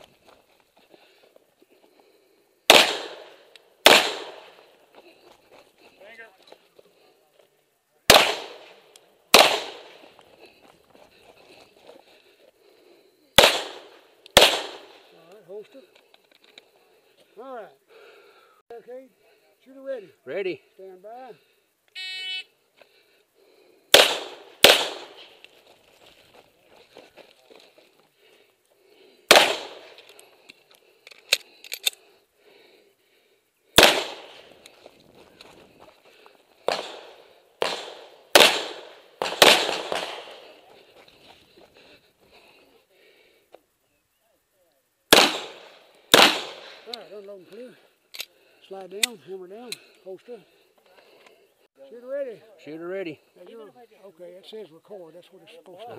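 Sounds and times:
handgun shots with echo: 0:02.7 - 0:04.5
pistol shots: 0:02.7 - 0:04.6, 0:08.1 - 0:10.1, 0:13.4 - 0:15.0, 0:23.9 - 0:25.4, 0:29.3 - 0:30.0, 0:33.8 - 0:34.5, 0:36.7 - 0:40.6, 0:45.1 - 0:46.9.

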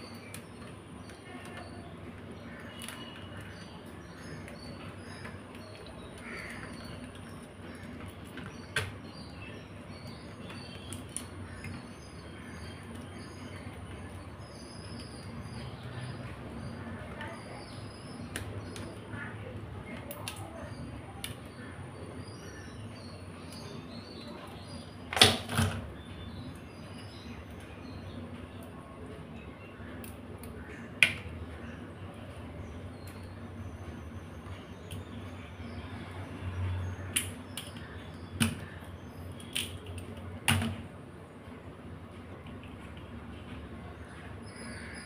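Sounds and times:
crab shells cracking: 0:10.0 - 0:13.7, 0:19.8 - 0:20.5, 0:37.1 - 0:40.6.

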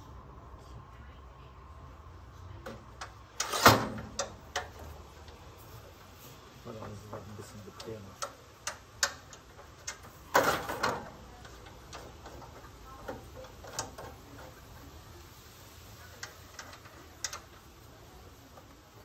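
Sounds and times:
metal handle clicking and rattling: 0:02.7 - 0:05.4, 0:06.8 - 0:14.5.

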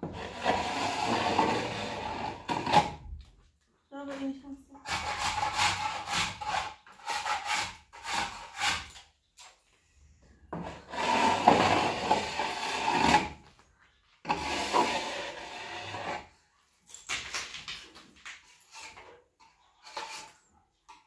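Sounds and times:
trowel scrapes and knocks: 0:00.0 - 0:03.0, 0:18.2 - 0:21.0
trowel rubbing on plaster wall: 0:00.0 - 0:03.1, 0:04.8 - 0:09.1, 0:10.6 - 0:13.4, 0:14.2 - 0:16.4.

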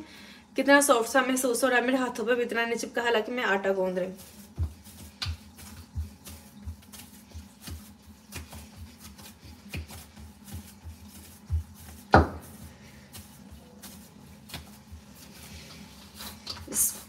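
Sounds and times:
hands kneading dough on metal: 0:03.4 - 0:17.0.

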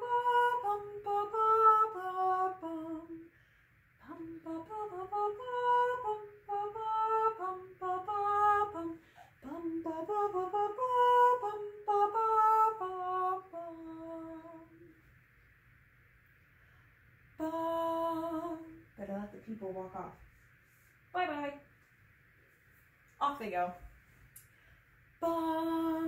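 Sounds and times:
woman singing unaccompanied: 0:00.0 - 0:03.3, 0:04.0 - 0:14.9, 0:17.4 - 0:19.1, 0:25.2 - 0:26.0.

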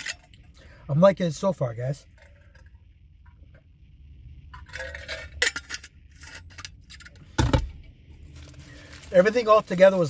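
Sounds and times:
bottle handling and metal clinks: 0:04.6 - 0:07.7.

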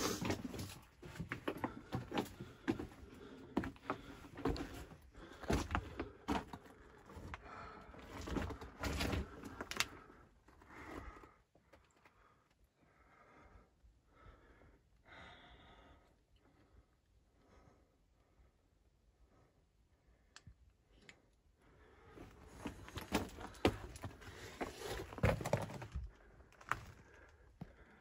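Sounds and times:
stones clattering underfoot: 0:22.7 - 0:27.1.

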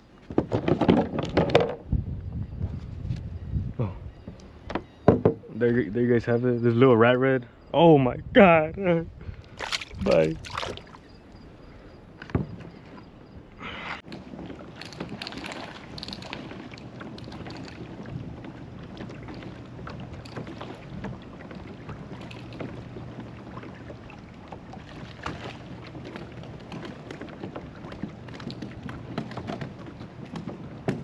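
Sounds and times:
wind on microphone: 0:00.0 - 0:06.0, 0:07.6 - 0:11.7, 0:12.3 - 0:31.0
water lapping against hull: 0:09.1 - 0:31.0.

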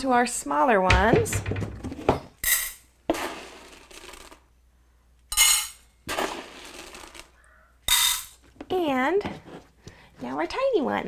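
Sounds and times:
pellets rattling into metal bowls: 0:02.6 - 0:04.4, 0:05.4 - 0:07.3.

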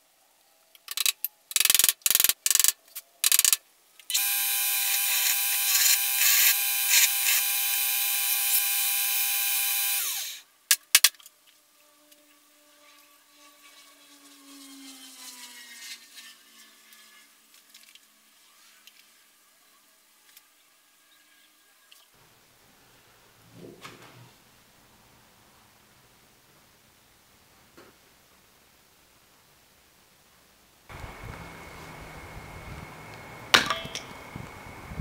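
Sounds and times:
bench grinder running: 0:04.1 - 0:10.4
grinder motor spinning down: 0:04.1 - 0:10.4.

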